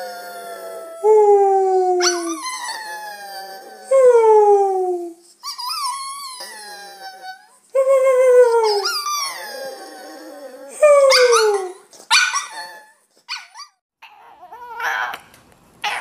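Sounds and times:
dog howling: 0.0s - 1.2s.

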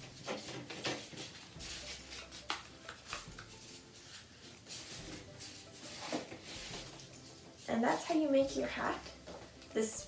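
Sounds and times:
paper rustling and crinkling: 0.0s - 8.2s.

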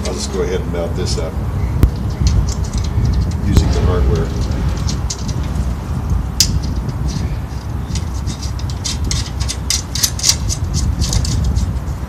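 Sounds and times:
low rumble: 0.9s - 12.0s
metallic clicks of bolt and nut: 7.9s - 11.6s.

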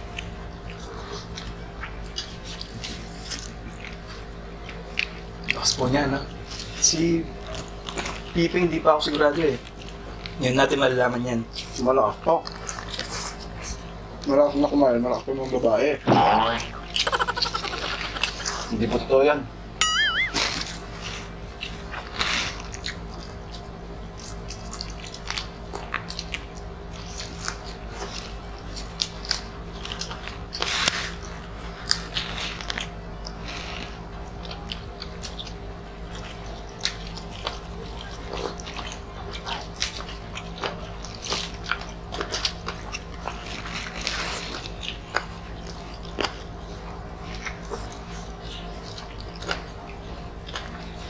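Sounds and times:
people chewing food: 0.0s - 51.0s
steady low hum: 16.2s - 51.0s.

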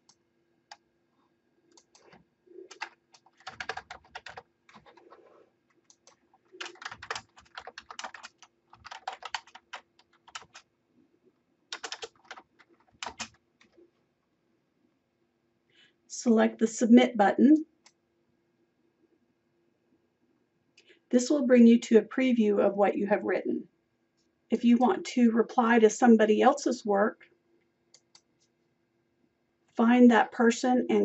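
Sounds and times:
typing on computer keyboard: 1.7s - 10.7s, 11.7s - 13.8s, 27.9s - 28.3s.

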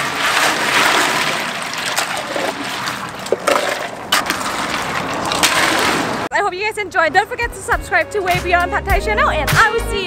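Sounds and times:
liquid and ice sloshing: 0.0s - 6.3s.

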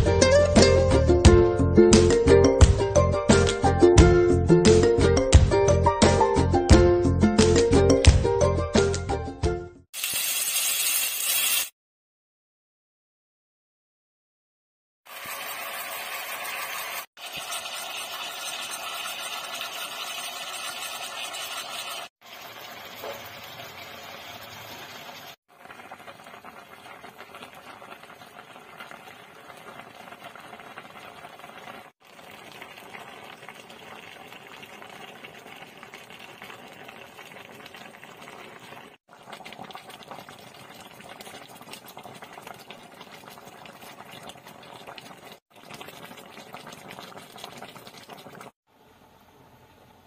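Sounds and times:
sauce simmering in a pan: 15.1s - 48.6s.

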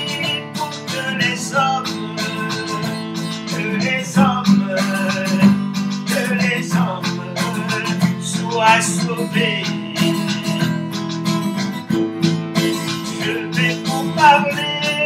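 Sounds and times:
man singing: 0.0s - 11.4s, 12.6s - 15.0s
acoustic guitar strumming: 0.0s - 15.0s.

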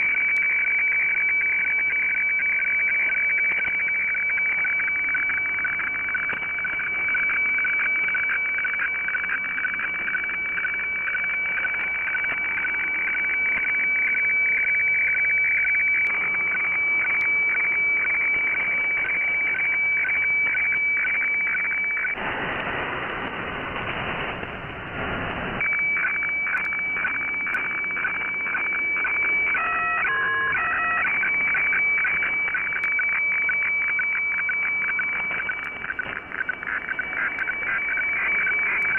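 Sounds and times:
radiofax tone with chirping dips: 0.0s - 38.9s
receiver hiss: 0.0s - 38.9s
stepped radio tones: 0.0s - 38.9s.

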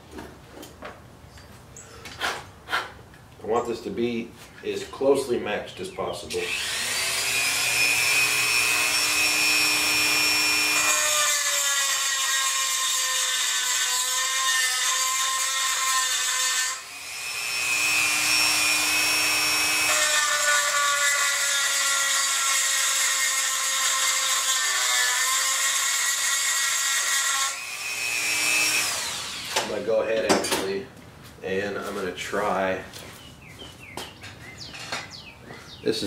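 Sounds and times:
rotary tool grinding metal: 6.3s - 29.8s.

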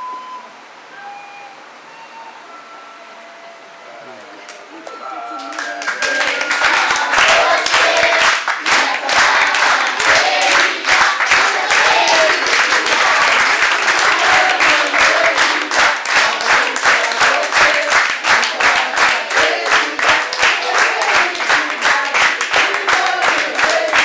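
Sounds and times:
crowd clapping: 4.9s - 24.0s.

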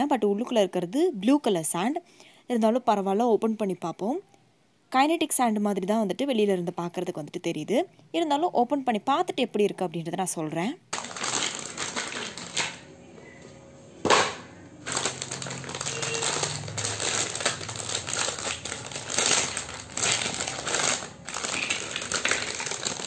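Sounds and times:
plastic bag crinkling: 10.9s - 12.9s, 14.1s - 23.0s.

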